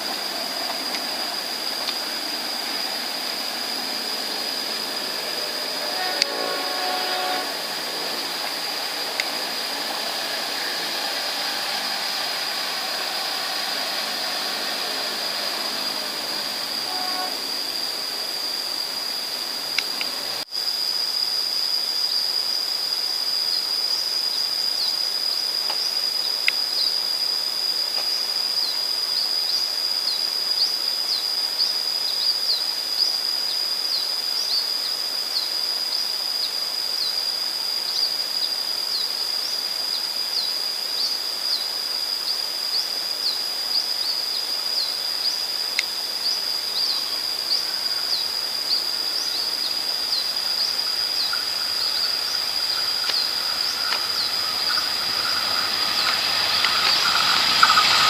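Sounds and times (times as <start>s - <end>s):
faint train hum: 0.0s - 20.5s, 42.7s - 58.0s
high-pitched insect drone: 0.0s - 58.0s
insect chirps: 0.0s - 58.0s.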